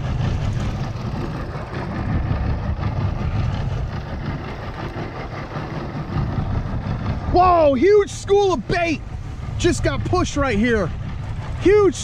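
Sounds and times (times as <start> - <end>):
outboard motor rumbling: 0.0 - 12.0
water rushing and splashing: 0.0 - 12.0.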